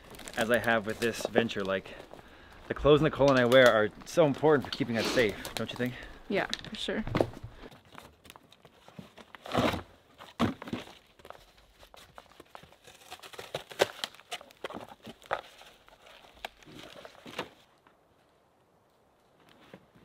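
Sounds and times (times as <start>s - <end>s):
cardboard boxes tearing and crunching: 0.0s - 2.1s, 7.8s - 17.7s.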